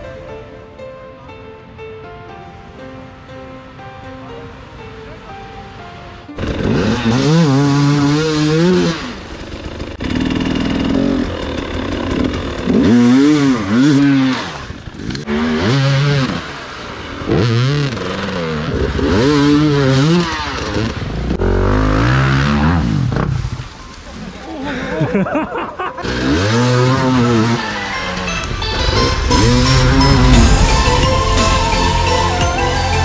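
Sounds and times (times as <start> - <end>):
music: 0.0 - 6.4, 26.9 - 33.0
dirt bike engines revving: 6.4 - 33.0.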